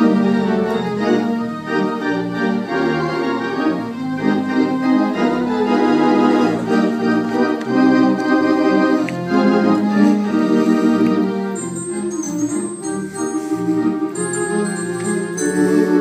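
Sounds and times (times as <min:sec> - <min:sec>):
theatre pipe organ playing: 0:00.0 - 0:16.0.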